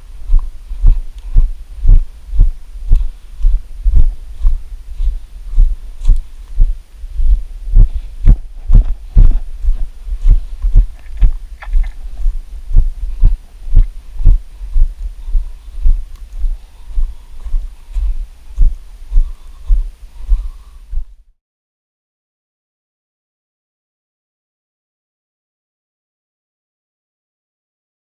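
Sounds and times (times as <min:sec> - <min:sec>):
heavy footsteps thudding: 0:00.2 - 0:21.0.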